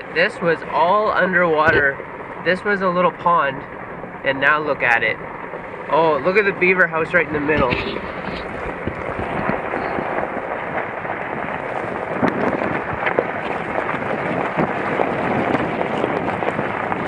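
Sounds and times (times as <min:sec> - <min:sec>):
tyres rolling over gravel: 0:04.4 - 0:17.0.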